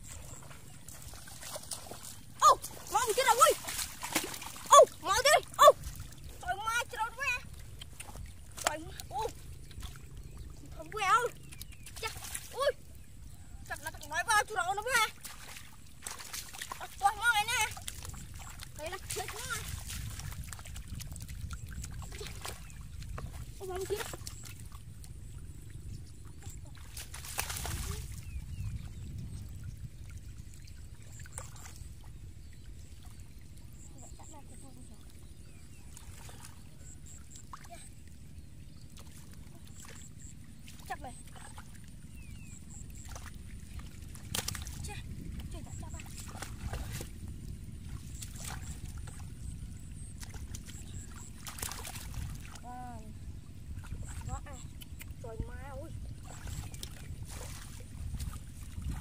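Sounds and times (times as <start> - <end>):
water splash: 0.0 - 6.5, 15.0 - 24.8, 26.4 - 28.3, 42.9 - 47.1, 50.0 - 52.8
hands sloshing in muddy water: 0.0 - 59.0
steady low rumble: 0.0 - 59.0.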